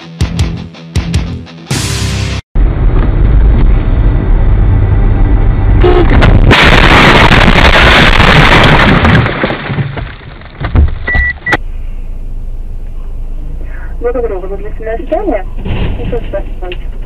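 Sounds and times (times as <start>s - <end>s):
car rumble in motion: 2.6s - 8.0s, 8.8s - 17.0s
loud crash: 5.8s - 11.0s.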